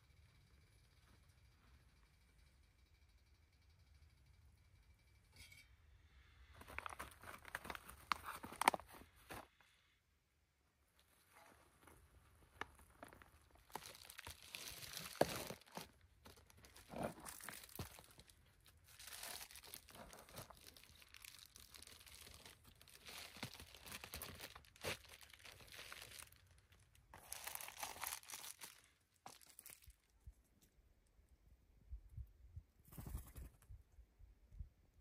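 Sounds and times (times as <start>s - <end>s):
crinkling and rustling: 6.5s - 9.6s, 10.9s - 30.8s.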